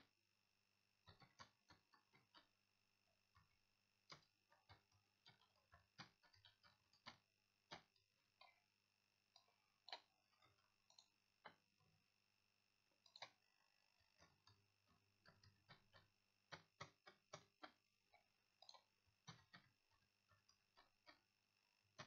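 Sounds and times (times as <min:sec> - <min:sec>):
keyboard typing: 0:01.0 - 0:02.5, 0:03.4 - 0:08.6, 0:13.0 - 0:13.4, 0:14.2 - 0:21.3.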